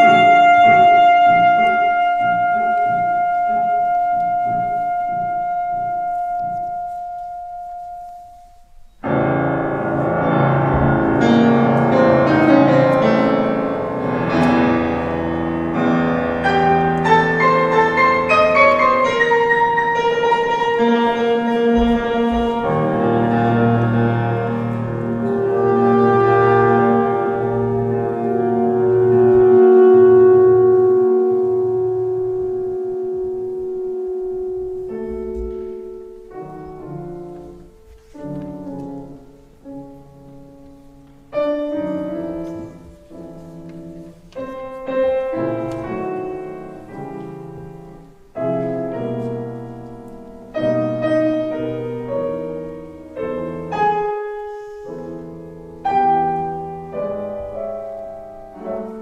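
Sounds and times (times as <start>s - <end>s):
saxophone: 0.0s - 9.2s, 9.9s - 35.8s
grand piano: 0.0s - 59.0s.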